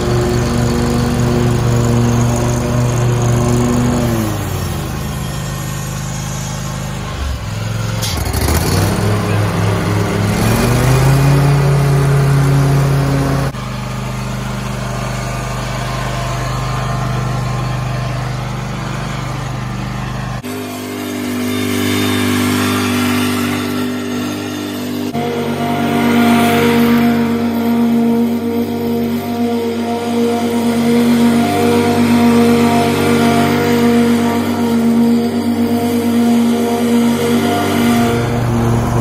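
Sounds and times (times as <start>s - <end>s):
mower engine running: 0.0s - 39.0s.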